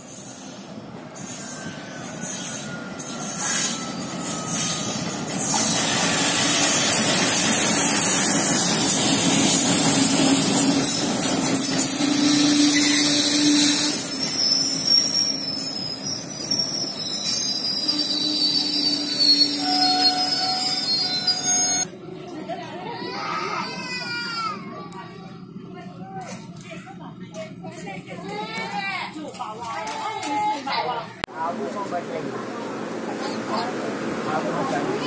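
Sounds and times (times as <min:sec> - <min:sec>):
train passing at speed: 0:00.0 - 0:21.1, 0:31.4 - 0:35.0
high thin wheel squeal: 0:00.1 - 0:21.9.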